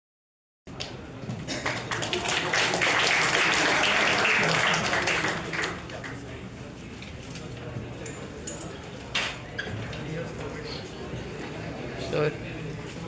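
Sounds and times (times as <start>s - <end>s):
chatter: 0.8s - 13.0s
audience applauding: 1.5s - 6.3s.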